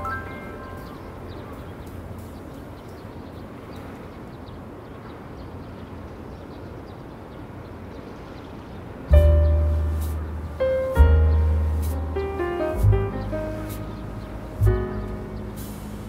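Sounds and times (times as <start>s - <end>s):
faint high chirps: 0.0s - 3.9s
low rumble and hiss: 0.0s - 16.0s.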